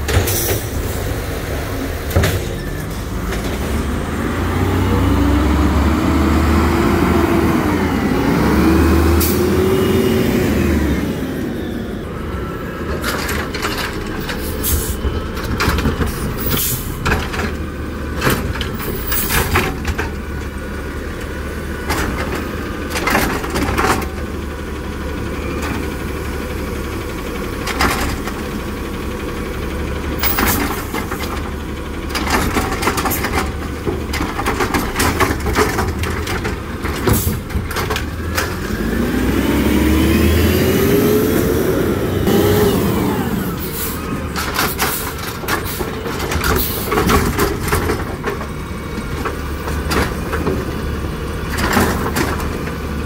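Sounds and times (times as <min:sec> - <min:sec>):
clanks and knocks from carts: 0:00.0 - 0:01.0, 0:01.9 - 0:04.0, 0:12.8 - 0:29.1, 0:29.8 - 0:39.0, 0:43.6 - 0:53.0
garbage truck engine running: 0:00.0 - 0:53.0
hydraulic arm lifting carts: 0:30.0 - 0:53.0.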